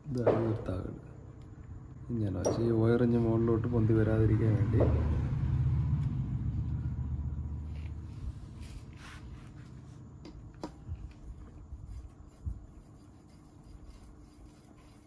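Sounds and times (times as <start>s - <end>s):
soft knock: 4.6s - 5.3s.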